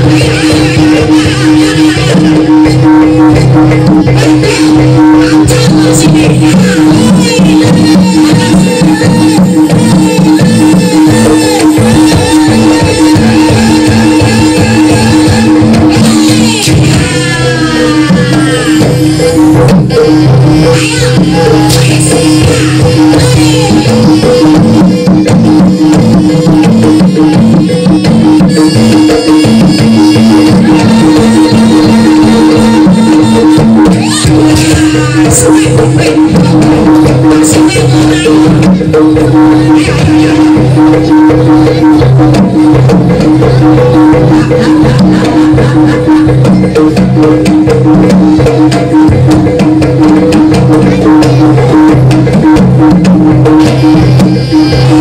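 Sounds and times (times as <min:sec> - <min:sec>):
gamelan ensemble drums and metal percussion: 0:00.0 - 0:55.0.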